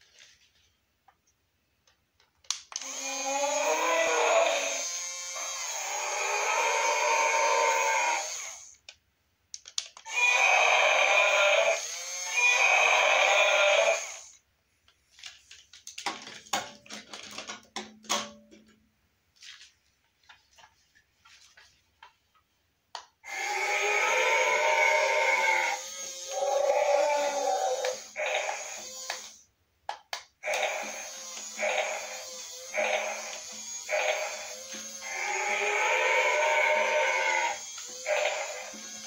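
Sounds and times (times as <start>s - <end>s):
toy mechanism clicks: 2.4s - 3.4s, 25.8s - 29.4s, 30.1s - 36.2s, 37.0s - 39.0s
toy dinosaur electronic roar: 2.8s - 8.8s, 10.1s - 14.4s, 23.2s - 29.4s, 30.4s - 39.0s.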